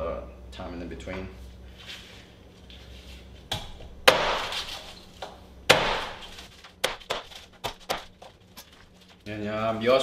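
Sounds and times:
cleaver chopping on wooden board: 3.5 - 4.7, 5.7 - 8.1.

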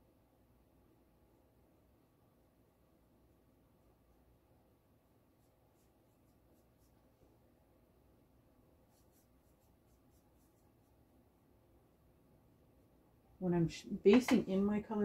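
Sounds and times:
paintbrush strokes on panel: 5.2 - 7.4, 8.8 - 11.1.

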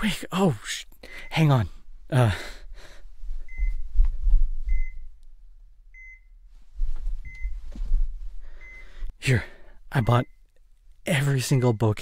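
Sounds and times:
heart monitor beeping: 3.4 - 5.2, 5.9 - 6.5, 7.1 - 9.2, 10.0 - 10.5, 11.1 - 12.0
low rumbling handling noise: 6.5 - 8.4.

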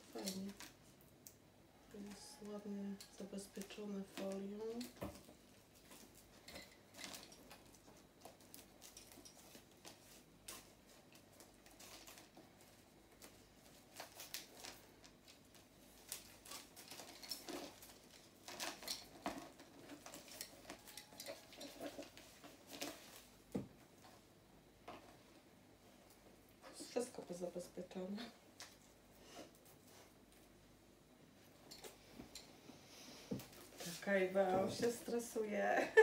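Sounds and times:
plastic film rustling: 0.0 - 1.4, 2.0 - 24.2.

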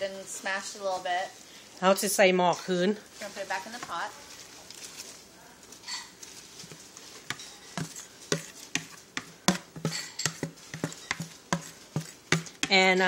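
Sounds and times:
spatula knocking plastic bowl: 7.3 - 13.0.

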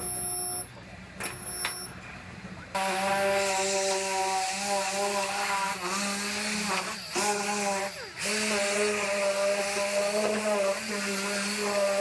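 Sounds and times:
pneumatic die grinder whine: 2.7 - 12.0.

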